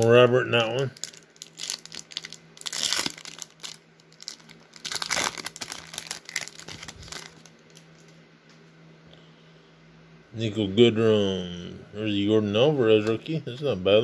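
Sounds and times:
card pack wrapper crinkling and tearing: 0:00.6 - 0:08.1.

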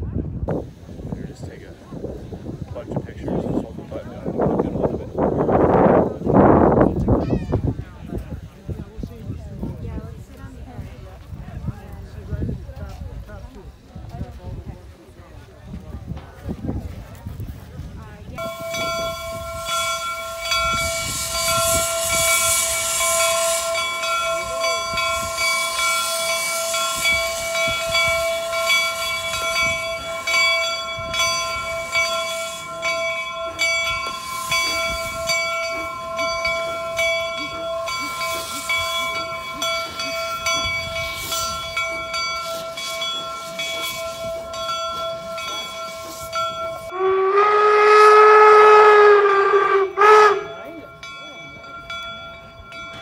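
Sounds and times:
steam hissing: 0:00.5 - 0:07.8, 0:18.4 - 0:51.1
steam whistle blasts: 0:18.4 - 0:39.7, 0:40.3 - 0:50.8
high ringing tones: 0:18.4 - 0:47.5.

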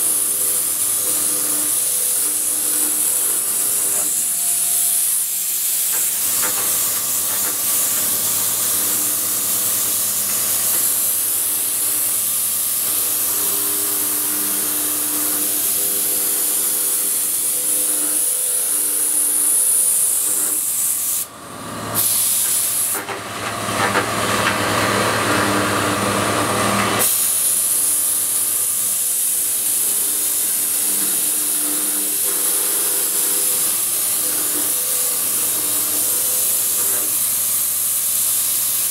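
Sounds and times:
mill cutter hissing through wood: 0:00.0 - 0:38.9.

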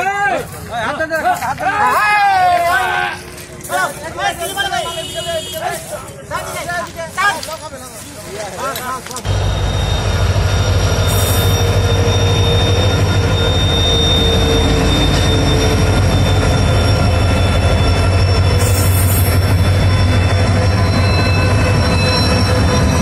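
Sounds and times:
diesel locomotive engine drone: 0:09.2 - 0:23.0
wheel squeal: 0:09.2 - 0:23.0.

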